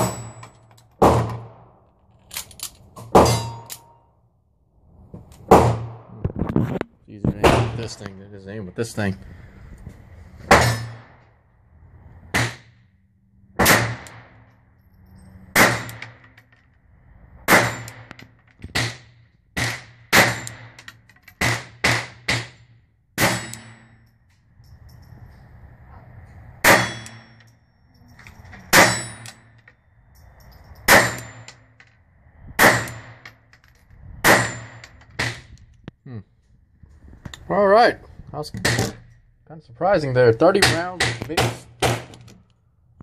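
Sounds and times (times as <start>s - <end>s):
steel target ringing: 3.2s - 4.0s, 26.6s - 27.6s, 28.6s - 29.6s
pistol shots: 13.6s - 14.4s, 15.6s - 16.1s, 19.6s - 20.7s.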